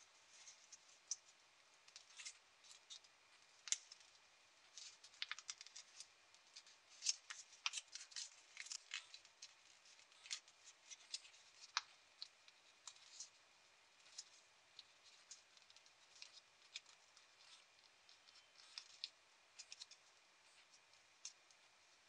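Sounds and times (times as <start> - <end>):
paper folding crackles: 0.3 - 22.0.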